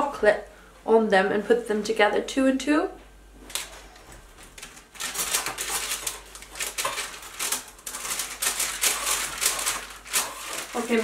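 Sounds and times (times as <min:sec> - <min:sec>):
metal spatula scraping baking tray: 0:05.1 - 0:11.0.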